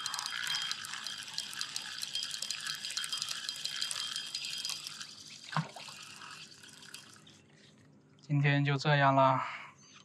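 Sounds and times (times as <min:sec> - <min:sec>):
lake water lapping and trickling: 0:00.0 - 0:08.4
small drip-like clicks: 0:00.0 - 0:08.4.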